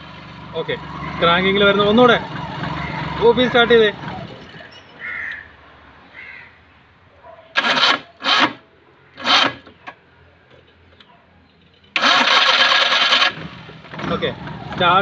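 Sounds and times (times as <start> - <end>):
car engine cranking and starting: 0.0 - 4.7, 7.5 - 8.6, 9.2 - 9.8, 11.9 - 15.0.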